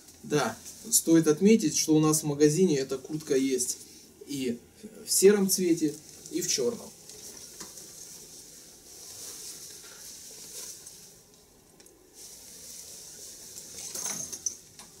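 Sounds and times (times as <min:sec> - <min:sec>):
jacket fabric rustling: 0:05.5 - 0:15.0.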